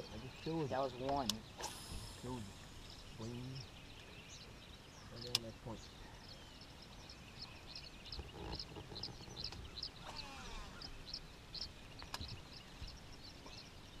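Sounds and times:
birds chirping and singing: 0:00.0 - 0:14.0
sharp click: 0:05.2 - 0:05.5.

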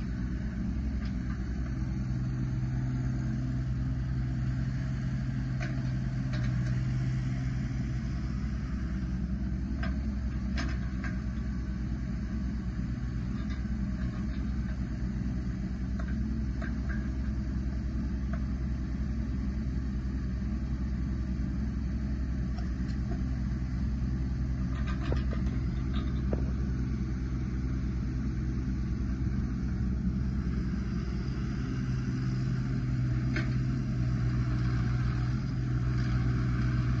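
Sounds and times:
excavator diesel engine running: 0:00.0 - 0:37.0
light metal clanks: 0:05.5 - 0:06.8, 0:09.7 - 0:11.5, 0:13.2 - 0:14.9, 0:15.9 - 0:17.4, 0:24.6 - 0:26.7.

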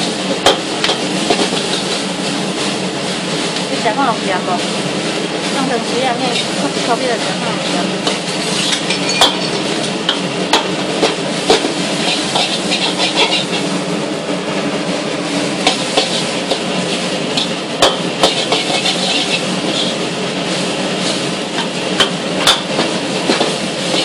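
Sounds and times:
sizzling hiss in a wok: 0:00.0 - 0:24.0
spatula scraping rice: 0:01.2 - 0:02.2, 0:10.1 - 0:13.8, 0:15.6 - 0:21.8, 0:22.4 - 0:24.0
spatula clacking on wok: 0:08.0 - 0:13.6, 0:15.6 - 0:16.7, 0:17.3 - 0:19.9, 0:21.6 - 0:24.0.

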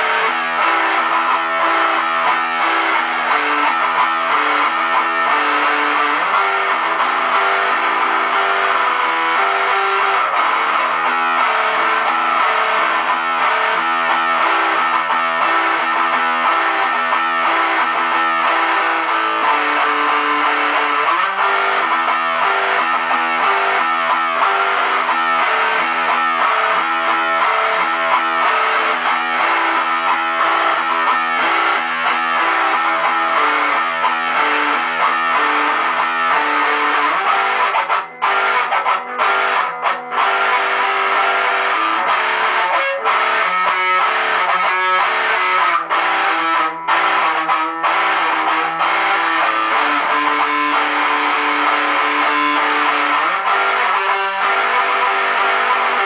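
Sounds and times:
distorted electric guitar: 0:00.0 - 0:56.0.

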